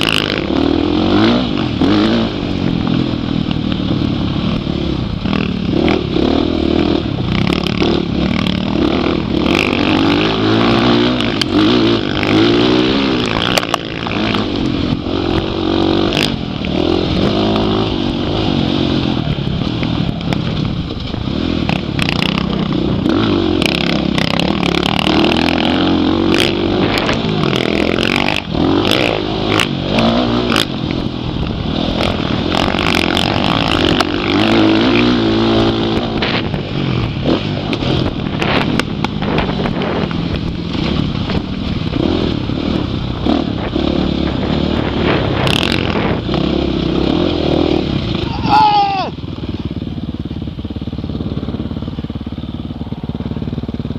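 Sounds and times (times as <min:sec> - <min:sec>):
dirt bike engine revving: 0:00.0 - 0:53.9
knocks and clatter from bike: 0:19.6 - 0:22.9, 0:37.2 - 0:42.5.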